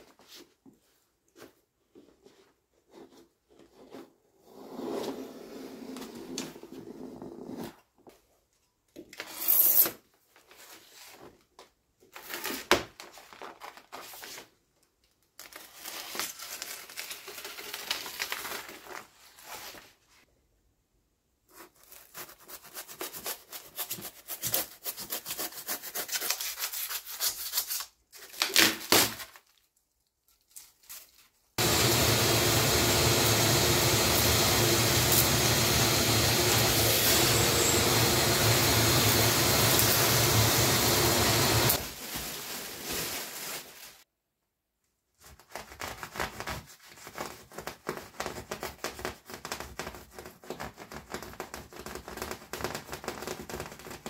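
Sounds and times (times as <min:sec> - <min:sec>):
vacuum cleaner running: 0:31.6 - 0:42.5.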